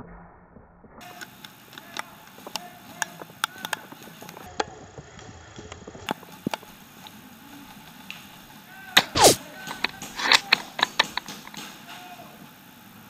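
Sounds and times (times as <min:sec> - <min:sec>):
airsoft gun burst: 0:08.8 - 0:12.1
airsoft gun clicks: 0:09.0 - 0:11.7.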